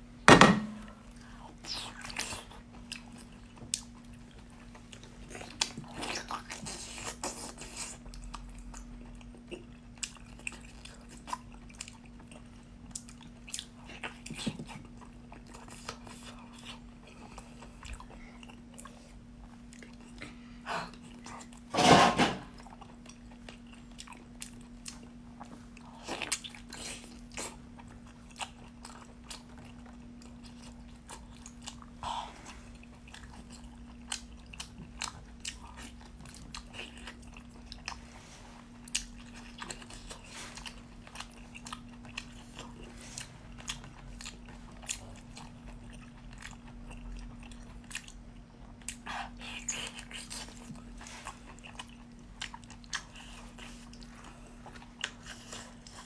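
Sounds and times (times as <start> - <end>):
steady low hum: 0.0 - 56.0
wet chewing clicks and smacks: 38.8 - 56.0.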